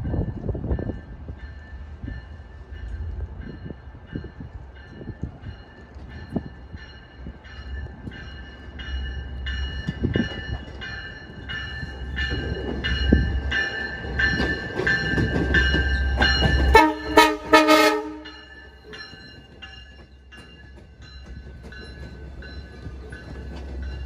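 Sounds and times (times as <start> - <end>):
crossing warning bell ringing: 0.0 - 24.0
low train rumble: 0.0 - 24.0
train horn blasts: 16.7 - 18.5.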